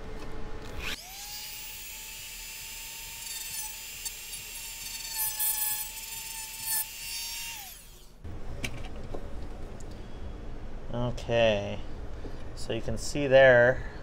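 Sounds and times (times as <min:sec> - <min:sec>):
motor winding down: 0:00.7 - 0:08.1
rotary tool grinding plastic: 0:02.8 - 0:08.1.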